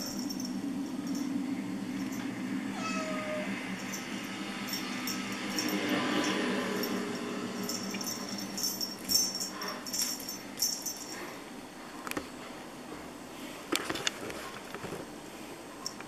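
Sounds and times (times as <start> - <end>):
small jingle bell jingling: 0.0 - 1.3, 3.8 - 11.3.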